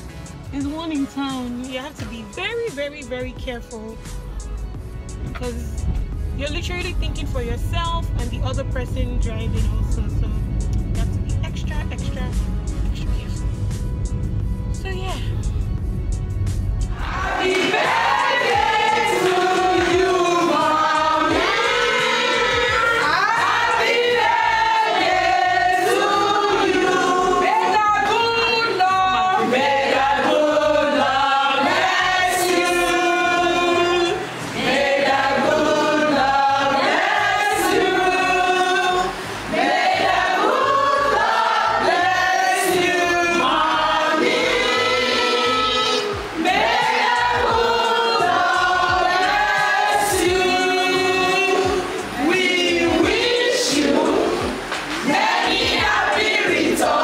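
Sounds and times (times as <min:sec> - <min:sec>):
women singing in chorus: 0:17.0 - 0:57.0.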